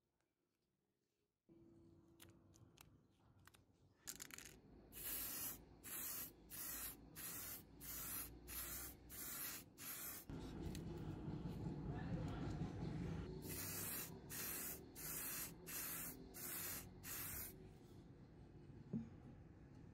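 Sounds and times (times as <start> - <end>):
spray paint hissing bursts: 5.0 - 10.3, 13.4 - 17.6.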